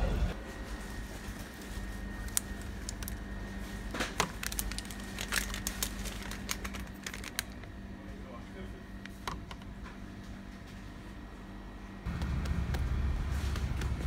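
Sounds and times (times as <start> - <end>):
steady low hum: 0.0 - 14.0
plastic packaging crinkling: 0.8 - 7.8.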